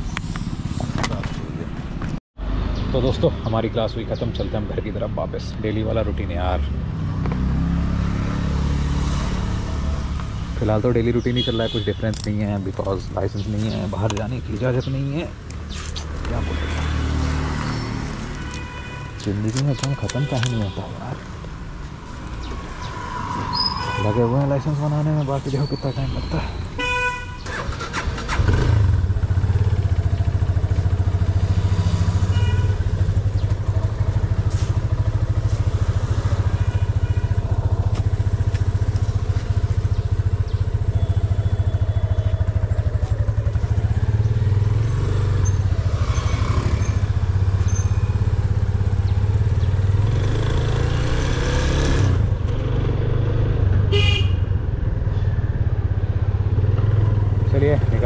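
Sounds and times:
motorcycle horn toot: 11.3s - 12.2s, 18.4s - 21.0s, 26.8s - 27.6s, 32.3s - 33.0s, 53.9s - 54.6s
motorcycle engine running: 28.5s - 52.8s.

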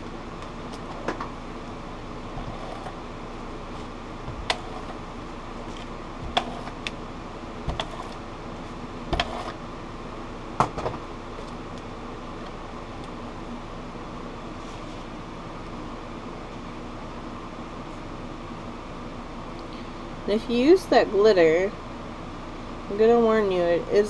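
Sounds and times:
steady background hum: 0.0s - 24.0s.

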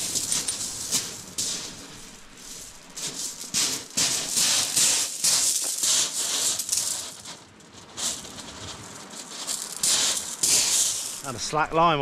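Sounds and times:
footsteps crunching on pebbles: 0.0s - 11.4s.

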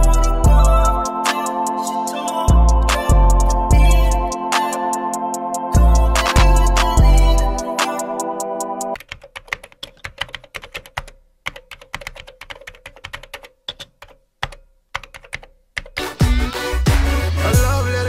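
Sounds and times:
background music: 0.0s - 9.0s, 16.0s - 18.0s.

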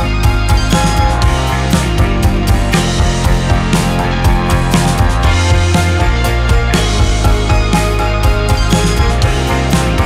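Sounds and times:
sustained bass notes: 0.0s - 10.0s
drum hits: 0.6s - 8.0s.

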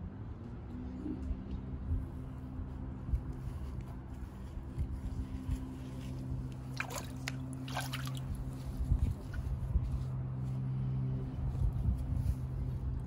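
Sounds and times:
water splashing in paddling pool: 6.6s - 8.4s.

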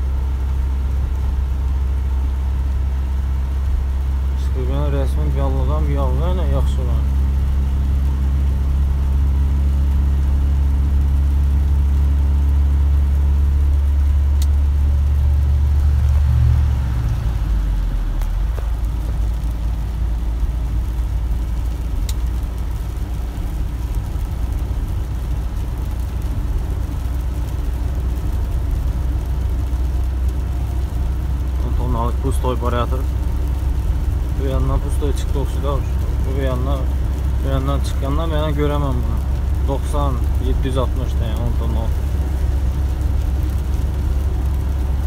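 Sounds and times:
truck engine droning: 0.0s - 45.0s
tyre and road noise: 0.0s - 45.0s
faint ticks: 22.0s - 22.4s.

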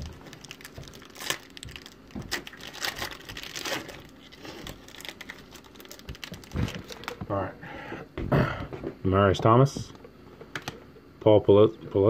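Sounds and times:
foil wrapper tearing and crinkling: 0.0s - 7.2s.

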